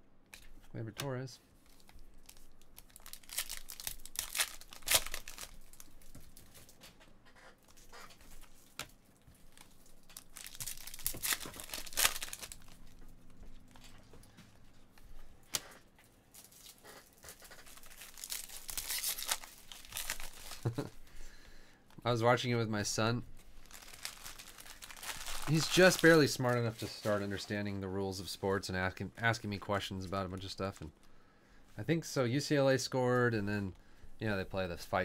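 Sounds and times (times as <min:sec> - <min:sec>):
card pack wrappers tearing and crinkling: 0:01.6 - 0:06.6, 0:09.4 - 0:13.0, 0:15.5 - 0:21.0, 0:22.1 - 0:27.2.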